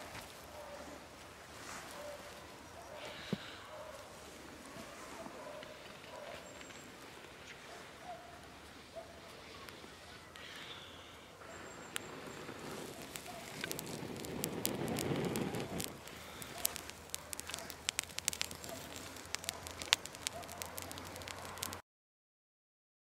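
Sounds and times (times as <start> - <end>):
burning grass crackling: 0.0 - 21.8
person blowing on tinder: 11.8 - 21.5.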